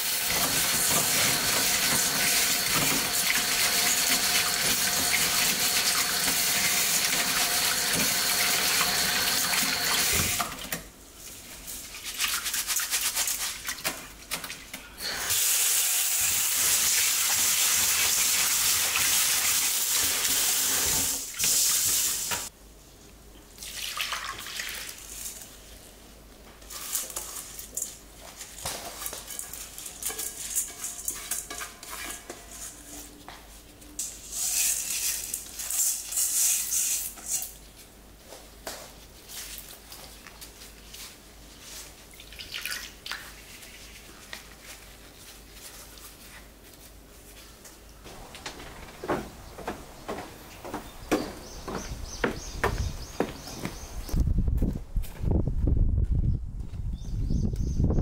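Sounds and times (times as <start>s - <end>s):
water running from tap: 0.0s - 10.4s.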